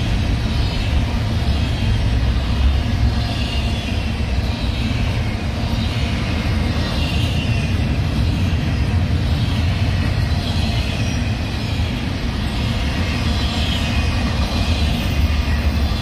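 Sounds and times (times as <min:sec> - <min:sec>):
freight train wheels rumbling: 0:00.0 - 0:16.0.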